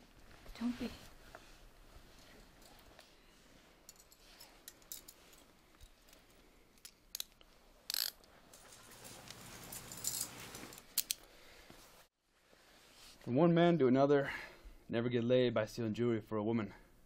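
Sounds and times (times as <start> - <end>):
handcuffs clicking shut: 6.8 - 8.3, 9.8 - 11.3.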